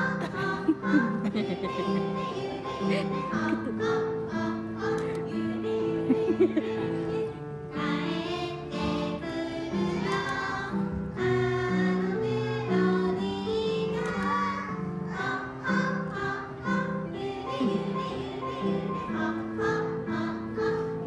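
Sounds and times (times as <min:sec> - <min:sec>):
children singing in unison: 0:00.0 - 0:21.0.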